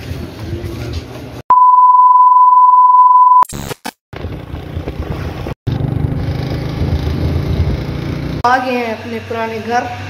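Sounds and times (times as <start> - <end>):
test-pattern beep: 1.5 - 3.4
wind and traffic rumble: 4.3 - 8.5.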